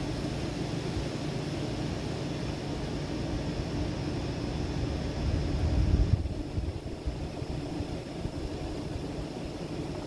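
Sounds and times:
strong wind rushing: 5.1s - 8.5s.

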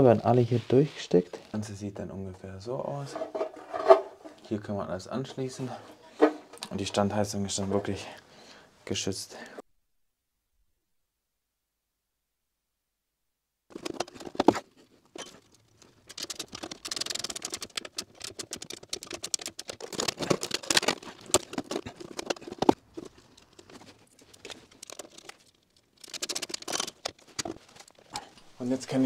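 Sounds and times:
tape rustling and crinkling: 13.7s - 29.0s.

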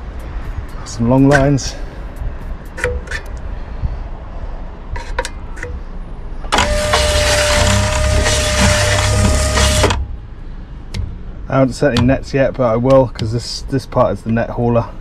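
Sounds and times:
electric hauler motor whining: 6.5s - 10.1s.

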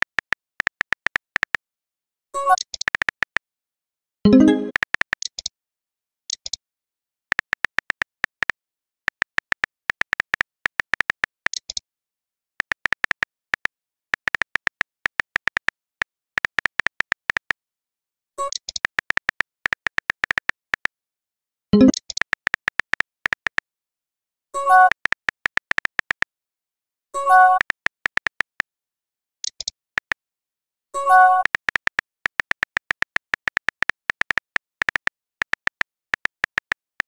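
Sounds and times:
phone keyboard typing clicks: 0.0s - 1.6s, 2.5s - 3.4s, 4.3s - 5.4s, 7.3s - 11.8s, 12.6s - 17.6s, 18.4s - 20.9s, 21.8s - 23.6s, 24.7s - 26.3s, 27.4s - 28.6s, 29.4s - 30.2s, 31.2s - 37.0s.

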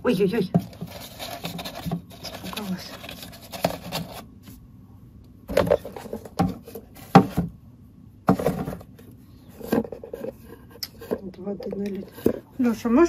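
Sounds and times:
plastic scraping and knocking: 0.4s - 4.2s, 5.5s - 7.6s, 8.2s - 12.5s.

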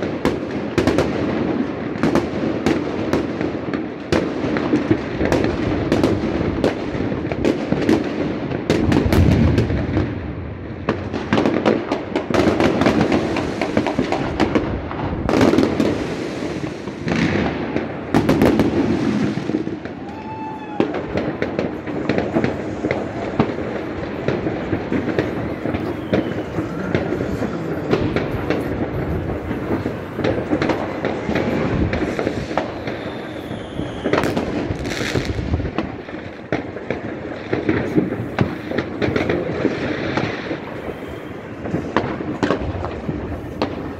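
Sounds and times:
fireworks crackling and banging: 0.0s - 43.9s
firework whistles: 17.8s - 35.9s, 37.5s - 43.9s.

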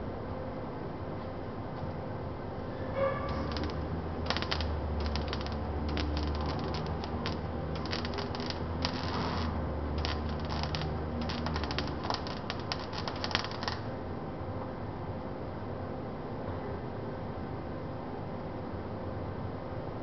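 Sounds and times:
steady low hum: 0.0s - 16.4s
welding arc crackling: 3.3s - 14.0s.

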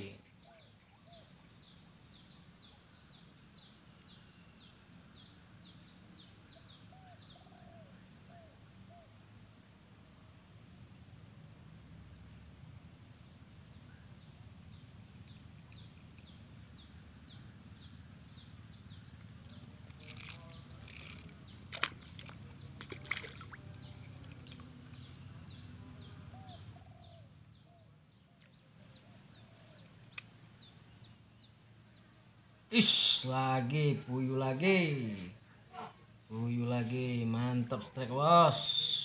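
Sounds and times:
high insect drone: 8.0s - 27.6s
fish splashing in water: 19.9s - 25.3s.

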